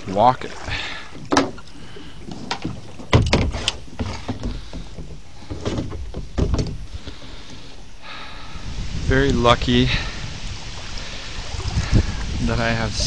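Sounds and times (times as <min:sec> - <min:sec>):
hollow plastic knocks of kayak: 0:01.2 - 0:01.6, 0:02.5 - 0:06.8.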